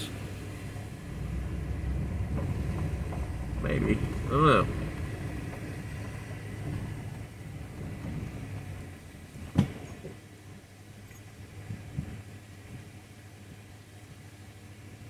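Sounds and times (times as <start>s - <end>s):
pickup truck rolling on gravel: 0.7s - 12.3s.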